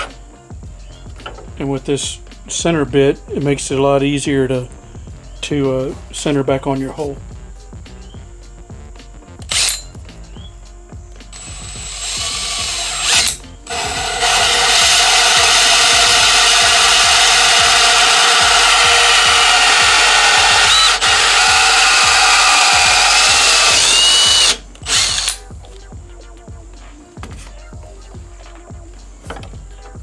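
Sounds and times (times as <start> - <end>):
cordless drill cutting with hole saw: 9.4 - 9.8, 11.3 - 25.4.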